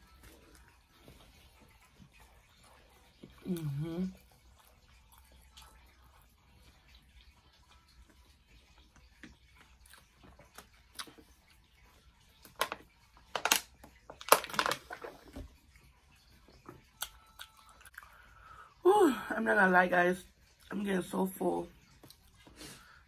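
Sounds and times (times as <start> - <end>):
person chewing: 0.0 - 6.2, 8.8 - 12.0
plastic bottle crackling: 12.5 - 15.5.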